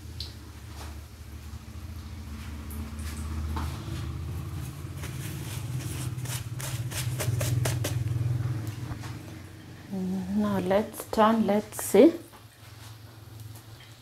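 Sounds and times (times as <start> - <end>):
food frying in hot oil: 0.0 - 7.9, 10.4 - 14.0
steady low hum: 0.0 - 12.0
sharp oil crackles: 11.8 - 14.0.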